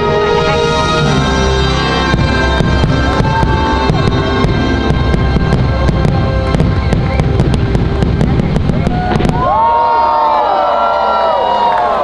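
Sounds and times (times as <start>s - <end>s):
orchestral show music: 0.0s - 10.1s
fireworks bursts and bangs: 1.7s - 10.5s.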